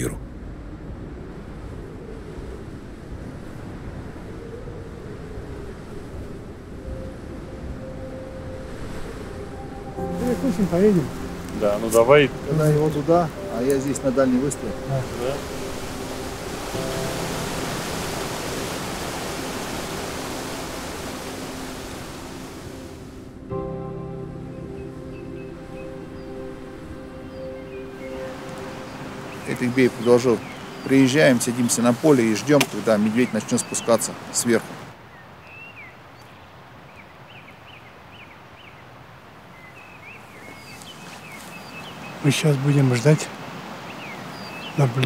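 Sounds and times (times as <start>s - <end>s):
open-air background hiss: 0.0s - 45.0s
river rushing over boulders: 10.0s - 23.2s, 27.7s - 35.1s, 38.8s - 45.0s.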